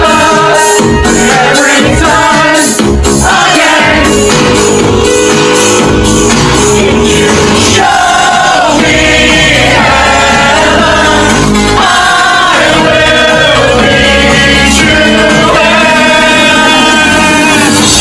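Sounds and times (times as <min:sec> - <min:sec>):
synth bass and keyboard: 0:00.0 - 0:18.0
man singing: 0:06.6 - 0:11.0, 0:12.4 - 0:18.0.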